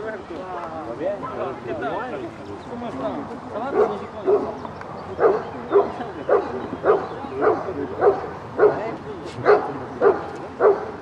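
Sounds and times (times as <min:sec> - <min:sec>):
dog barking: 0:05.2 - 0:08.8, 0:09.4 - 0:11.0.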